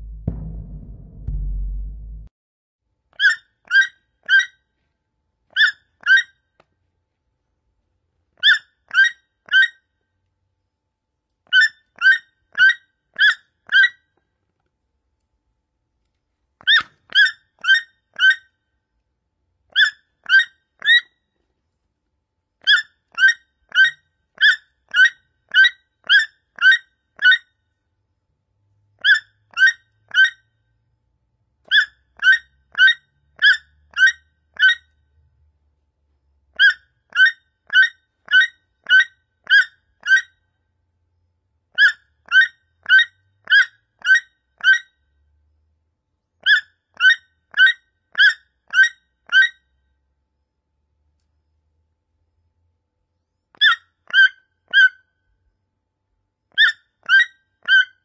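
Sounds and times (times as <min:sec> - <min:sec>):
toucan calling: 0:03.2 - 0:04.6, 0:05.5 - 0:06.3, 0:08.4 - 0:09.8, 0:11.5 - 0:14.0, 0:16.6 - 0:18.5, 0:19.7 - 0:21.1, 0:22.6 - 0:27.5, 0:29.0 - 0:30.4, 0:31.7 - 0:34.9, 0:36.6 - 0:40.4, 0:41.8 - 0:44.9, 0:46.4 - 0:49.6, 0:53.6 - 0:55.1, 0:56.5 - 0:58.0.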